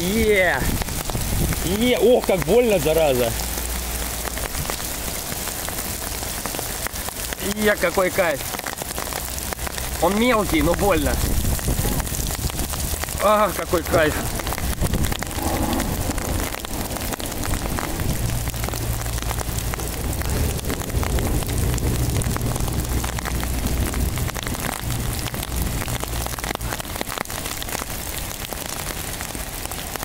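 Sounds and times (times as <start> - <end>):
heavy rain and hail pelting: 0.0 - 30.0
low rumble: 10.7 - 26.8.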